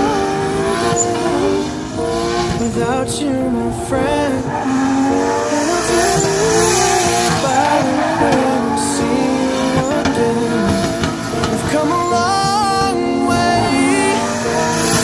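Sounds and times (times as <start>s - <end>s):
car engine revving: 0.0s - 15.0s
tyres squealing: 3.7s - 15.0s.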